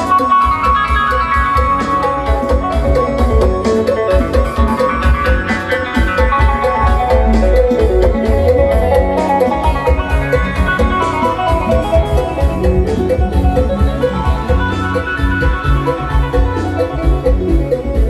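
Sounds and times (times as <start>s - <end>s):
heavy bass beat: 0.0s - 18.0s.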